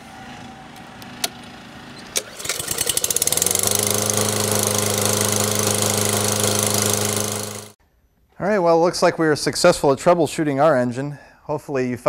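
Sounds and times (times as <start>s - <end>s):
lawn mower engine running: 0.0s - 7.8s.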